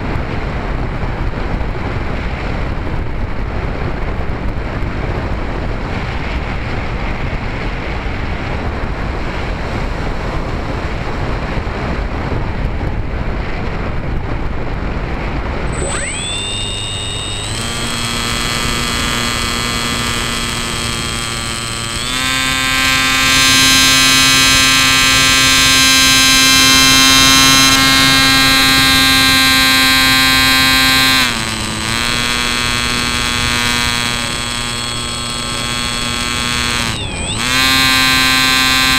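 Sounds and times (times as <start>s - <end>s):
electric motor and propeller whine: 15.4s - 38.9s.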